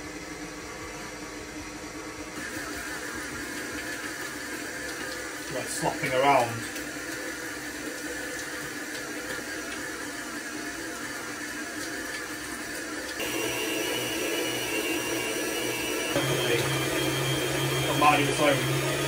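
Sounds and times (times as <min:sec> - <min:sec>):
stand mixer motor whine: 0:00.0 - 0:19.0
water pouring into bowl: 0:02.5 - 0:13.3.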